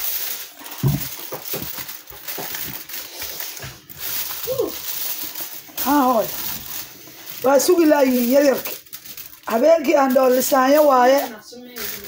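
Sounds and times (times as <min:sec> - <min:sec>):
kitchen foil crinkling: 0:00.0 - 0:12.0.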